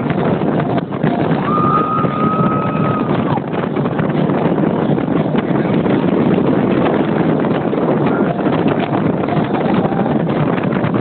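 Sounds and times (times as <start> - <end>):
boat engine and water roar: 0.0 - 11.0
wind buffeting microphone: 0.0 - 11.0.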